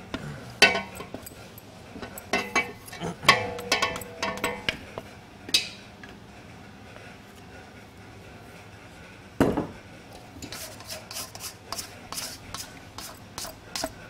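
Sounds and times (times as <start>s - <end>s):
steel bowl clanking and ringing: 2.3s - 4.8s
dough scraper scraping bowl: 10.4s - 14.0s.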